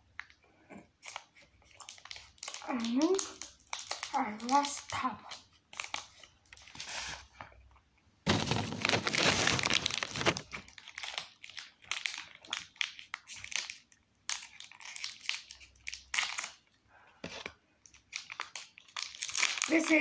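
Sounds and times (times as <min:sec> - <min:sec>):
plastic snack wrapper crinkling: 0:01.0 - 0:07.1, 0:08.3 - 0:16.8, 0:17.4 - 0:20.0.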